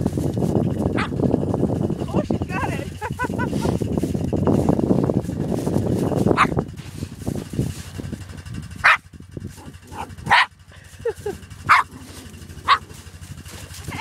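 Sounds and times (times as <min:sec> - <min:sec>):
small dog barking: 0:00.9 - 0:01.2, 0:06.3 - 0:06.6, 0:08.8 - 0:09.0, 0:09.6 - 0:10.5, 0:11.6 - 0:13.0.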